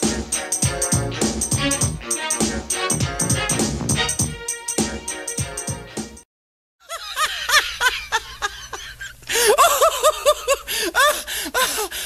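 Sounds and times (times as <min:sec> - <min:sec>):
people laughing: 0:06.9 - 0:11.8.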